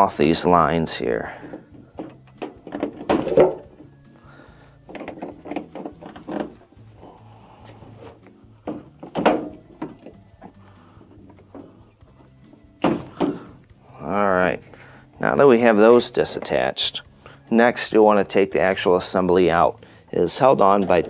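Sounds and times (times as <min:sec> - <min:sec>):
rubber hoses rubbing and creaking: 0:00.8 - 0:17.0.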